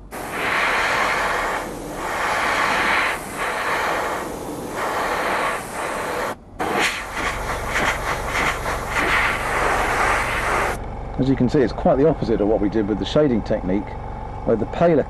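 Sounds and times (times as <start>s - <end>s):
airbrush hissing: 0.0s - 10.8s
low hum: 0.0s - 15.0s.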